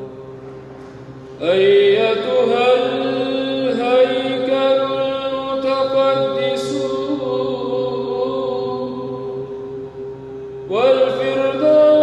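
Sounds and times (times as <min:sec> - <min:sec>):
low drone: 0:00.0 - 0:12.0
man chanting: 0:01.4 - 0:09.4, 0:10.7 - 0:12.0.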